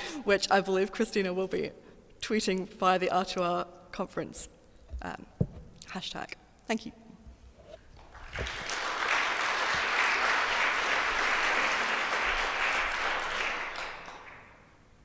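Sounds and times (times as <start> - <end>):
audience applauding: 8.0 - 14.7.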